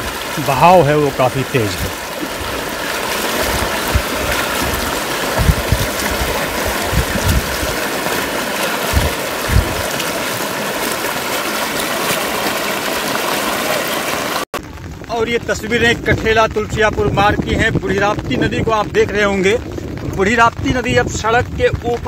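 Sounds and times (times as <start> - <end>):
floodwater rushing: 0.0 - 15.5
low thumps: 1.2 - 11.1.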